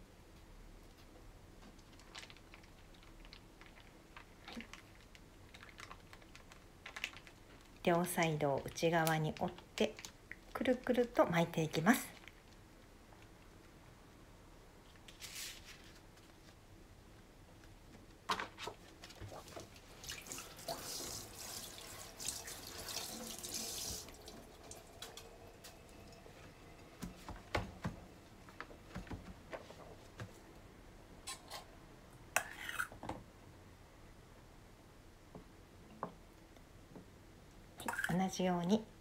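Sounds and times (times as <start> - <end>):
kitchen tap running: 19.9 - 26.3.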